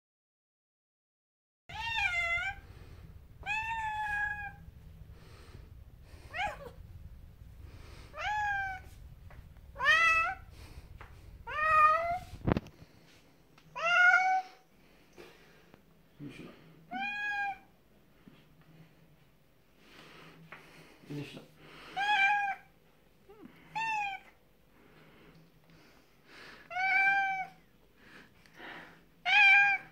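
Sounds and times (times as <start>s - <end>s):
cat meowing loudly: 1.7s - 2.6s, 3.4s - 4.7s, 8.1s - 8.9s, 9.8s - 10.5s, 11.4s - 12.3s, 13.8s - 14.6s, 16.9s - 17.7s, 22.0s - 22.7s, 23.7s - 24.3s, 26.7s - 27.6s, 29.2s - 29.9s.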